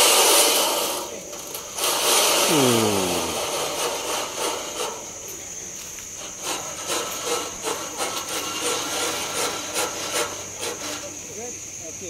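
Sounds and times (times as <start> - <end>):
high-pitched insect drone: 2.2 - 9.2.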